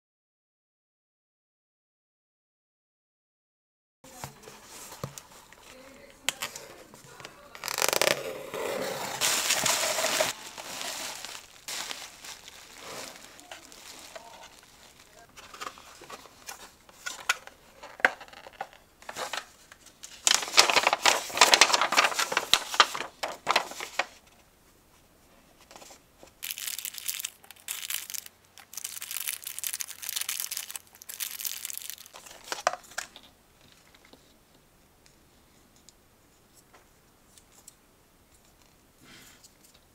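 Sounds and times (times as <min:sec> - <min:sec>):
paper and cardboard rustling: 0:04.1 - 0:24.5, 0:25.6 - 0:33.2
packing tape tearing: 0:07.6 - 0:08.2, 0:09.2 - 0:15.2, 0:26.4 - 0:32.8.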